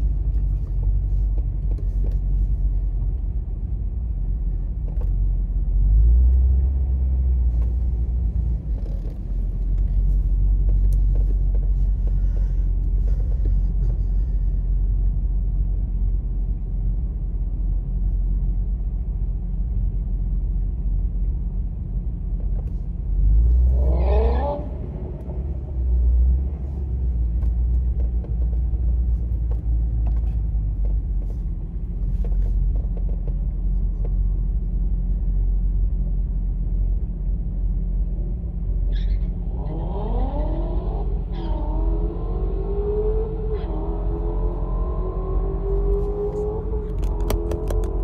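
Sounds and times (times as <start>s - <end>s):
car engine idling: 7.5s - 23.8s
racing car engines revving: 23.2s - 26.9s, 39.2s - 48.0s.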